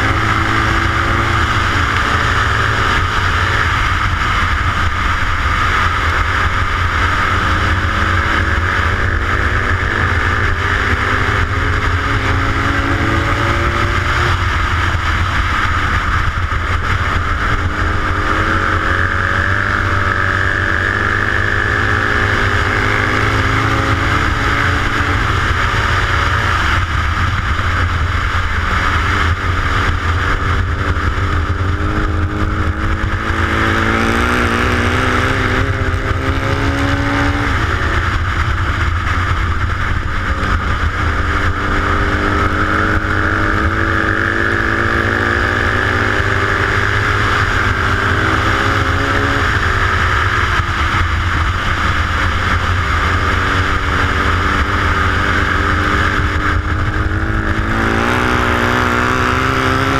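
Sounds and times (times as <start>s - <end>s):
racing motorcycle engine: 0.0s - 59.9s.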